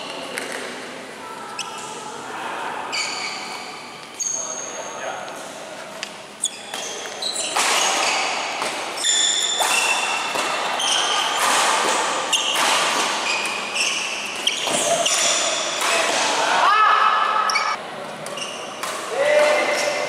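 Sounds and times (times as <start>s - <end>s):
shoes squeaking on court floor: 2.9s - 5.1s, 6.2s - 15.8s, 17.5s - 18.8s
racket hitting shuttlecock: 6.7s - 13.7s.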